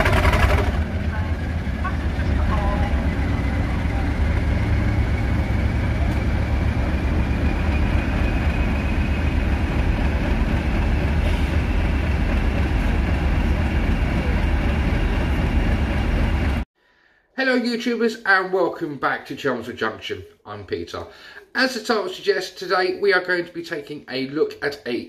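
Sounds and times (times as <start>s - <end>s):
locomotive engine idling: 0.0s - 16.6s.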